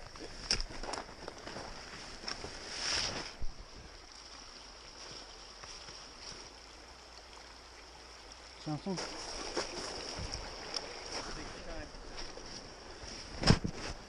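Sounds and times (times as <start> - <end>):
creek rushing: 0.2 - 14.0
ski gear knocking and scraping: 13.1 - 14.0.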